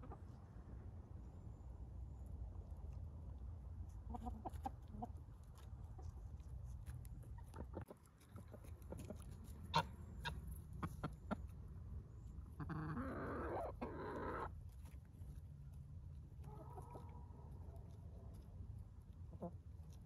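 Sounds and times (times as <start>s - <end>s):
chickens clucking: 0.0s - 0.4s, 3.9s - 15.0s, 16.3s - 18.4s, 19.0s - 20.0s.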